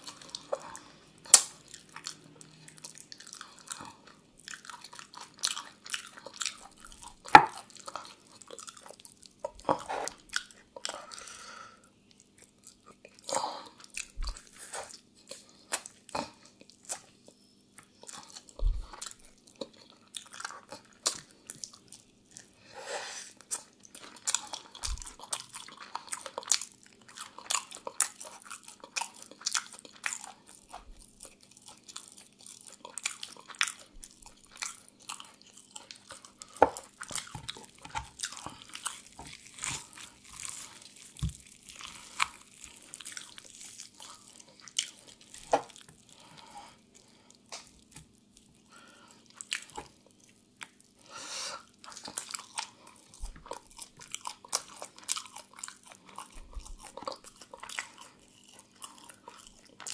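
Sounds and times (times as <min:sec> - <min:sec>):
chewing crispy chicken: 0:00.0 - 0:59.9.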